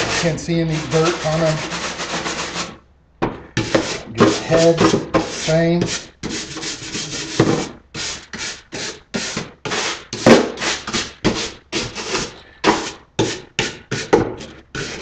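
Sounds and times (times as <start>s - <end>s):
stiff brush scrubbing: 0.0s - 2.8s, 3.6s - 10.0s, 13.6s - 15.0s.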